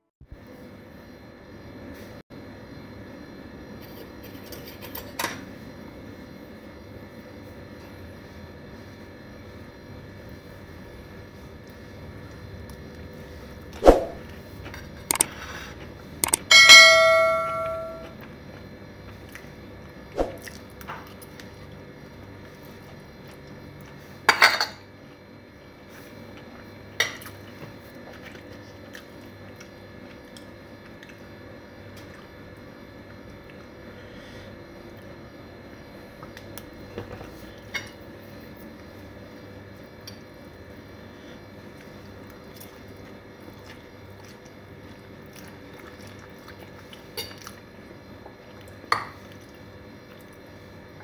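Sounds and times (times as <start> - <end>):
utensil clinking on a plate: 16.2 - 18.1.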